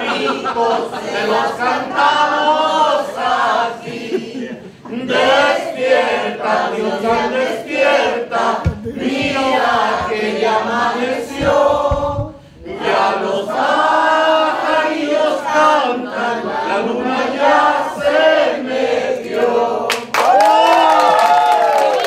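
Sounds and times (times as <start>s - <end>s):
crowd singing and chanting: 0.0s - 20.0s
low thumps: 8.6s - 12.6s.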